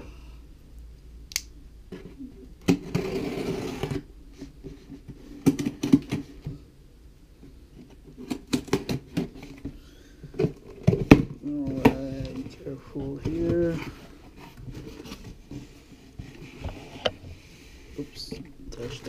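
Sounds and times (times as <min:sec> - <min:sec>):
cardboard scraping rustle: 0:02.8 - 0:05.4, 0:11.4 - 0:19.0.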